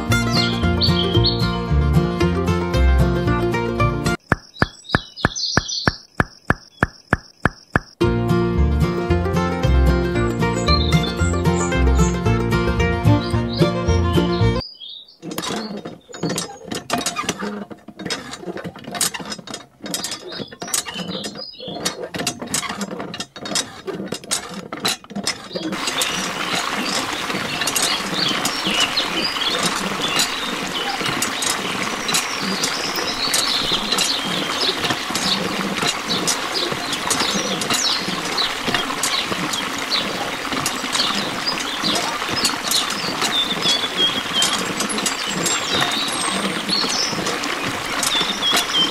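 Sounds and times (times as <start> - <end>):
water trickling into trough: 4.2 - 8.0, 15.2 - 48.9
hand pump lever clicking: 15.2 - 25.8.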